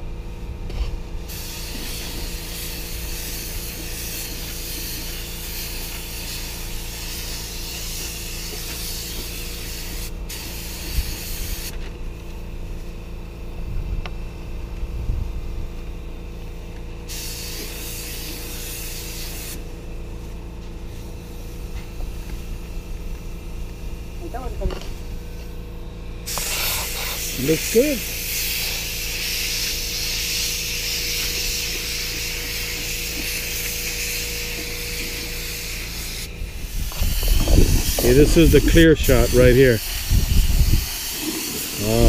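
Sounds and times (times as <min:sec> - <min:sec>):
steady low hum: 0:00.0 - 0:42.0
spray gun hissing: 0:01.3 - 0:11.7, 0:17.1 - 0:19.8, 0:26.3 - 0:42.0.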